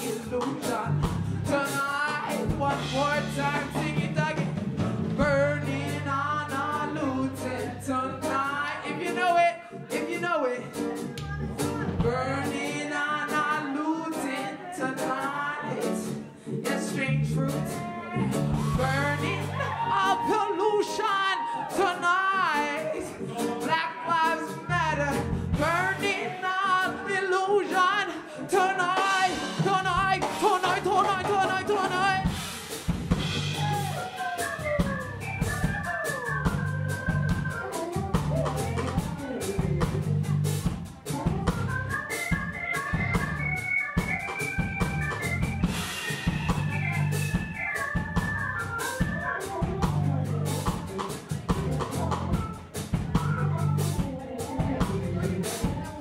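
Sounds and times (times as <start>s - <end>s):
electric bass: 0.0s - 8.6s, 11.1s - 12.7s, 16.9s - 19.8s, 24.7s - 26.1s, 29.6s - 34.0s, 34.6s - 55.8s
person singing wordless vocals: 0.0s - 32.4s, 49.1s - 56.0s
drum kit: 0.0s - 56.0s
electric keyboard chords: 0.0s - 56.0s.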